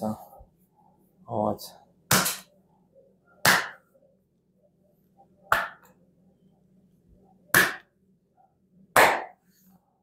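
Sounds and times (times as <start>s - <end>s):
palm smacking bare back: 3.4s - 3.8s, 9.0s - 9.4s.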